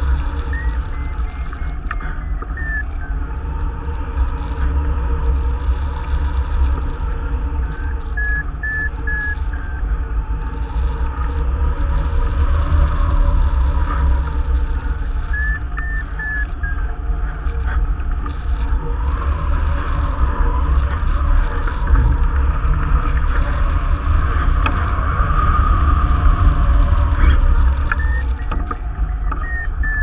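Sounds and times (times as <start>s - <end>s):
variometer high beeps: 0.4s - 3.4s, 7.7s - 9.9s, 15.2s - 17.4s, 27.2s - 30.0s.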